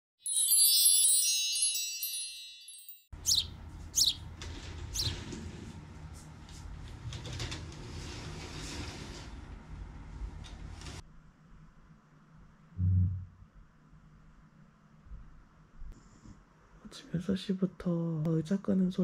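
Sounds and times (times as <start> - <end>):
wind chimes ringing: 0.2 - 3.4
birds chirping: 3.2 - 5.2.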